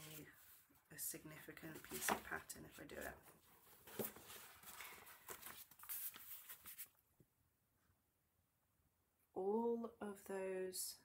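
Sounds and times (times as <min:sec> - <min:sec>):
pages rustling: 0:00.0 - 0:00.6, 0:01.6 - 0:07.0.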